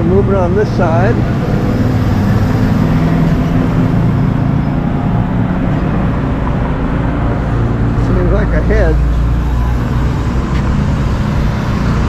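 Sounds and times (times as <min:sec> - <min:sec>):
motor vehicle engine hum: 0:00.0 - 0:12.0.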